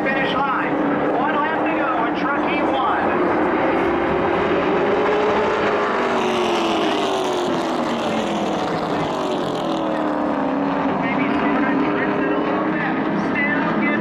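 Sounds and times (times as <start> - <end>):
racing truck engines: 0.0 - 14.0.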